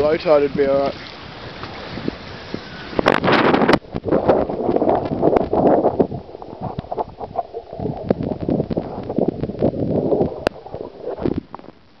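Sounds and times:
water sloshing and gurgling: 0.0s - 12.0s
water splashes: 0.0s - 12.0s
bubbly clicks: 3.8s - 12.0s.

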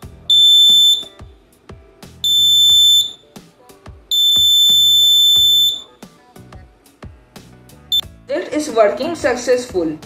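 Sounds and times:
high-pitched buzzer beeps: 0.3s - 1.2s, 2.2s - 3.2s, 4.1s - 5.9s.

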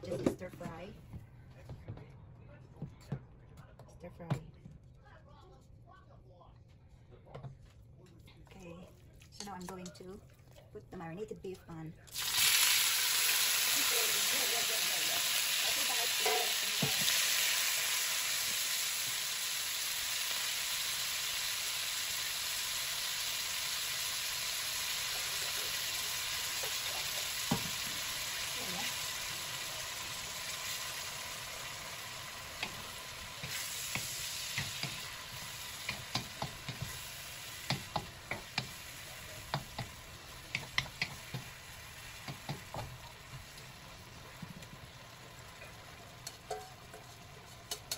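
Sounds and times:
meat sizzling in hot oil: 12.1s - 47.9s
spatula tapping against wok: 33.4s - 35.1s, 35.8s - 37.0s, 37.6s - 38.8s, 39.5s - 41.5s, 42.2s - 43.0s.

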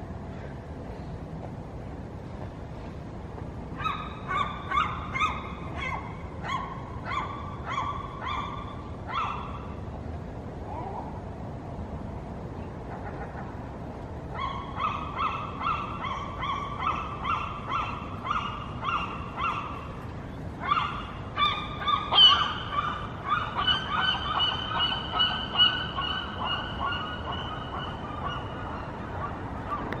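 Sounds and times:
gulls yelping: 3.7s - 9.8s, 14.3s - 30.0s.

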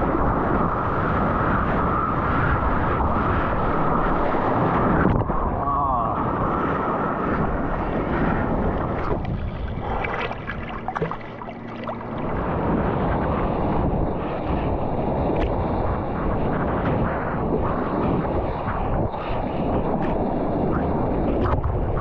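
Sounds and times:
wind buffeting microphone: 0.0s - 22.0s
water rushing and splashing: 7.4s - 13.6s.

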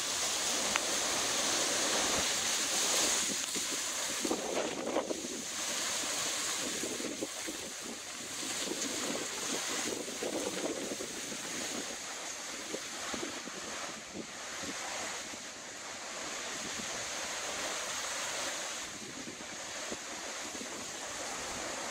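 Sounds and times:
strong wind through palm fronds: 0.0s - 21.9s
wind buffeting microphone: 0.7s - 15.5s.

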